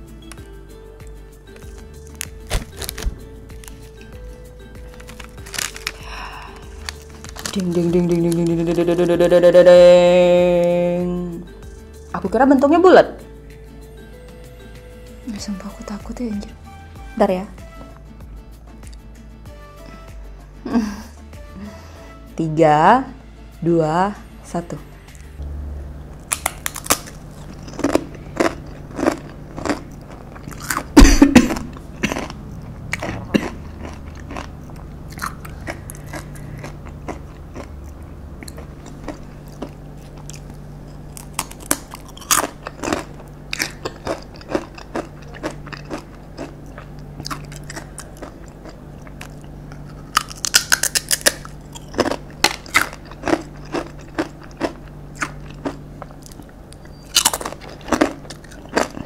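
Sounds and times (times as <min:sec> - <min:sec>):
crunching and chewing a chip: 0:01.5 - 0:09.1, 0:26.2 - 0:59.0.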